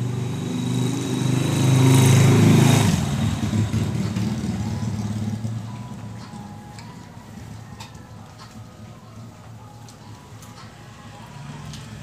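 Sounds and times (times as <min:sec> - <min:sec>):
motor vehicle passing by: 0:00.0 - 0:06.6, 0:10.7 - 0:12.0.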